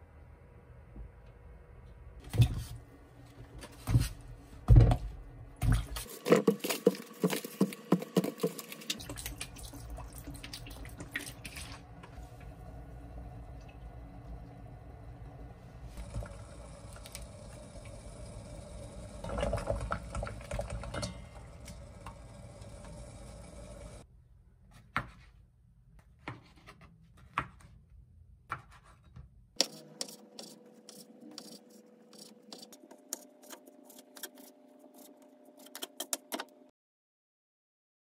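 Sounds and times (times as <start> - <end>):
water boiling in a pot: 8.2 - 24.0
knife cutting on cutting board: 29.6 - 36.3.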